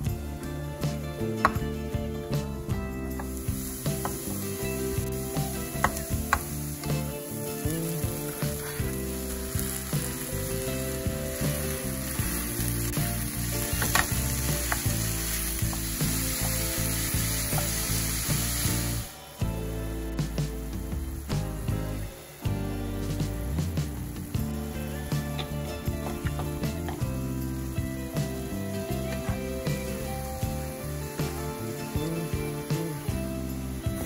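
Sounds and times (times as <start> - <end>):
meat and vegetables sizzling in pan: 0.0 - 34.0.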